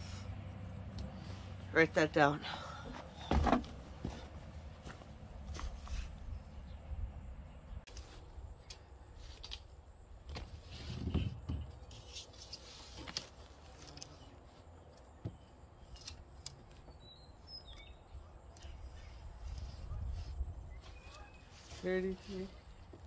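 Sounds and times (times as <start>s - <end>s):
faint bird chirps: 16.8s - 22.8s.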